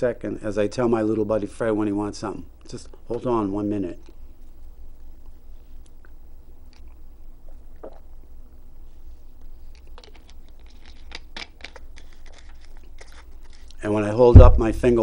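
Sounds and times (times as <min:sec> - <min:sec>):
low steady hum: 0:00.0 - 0:15.0
drinking from bottle: 0:07.5 - 0:08.1.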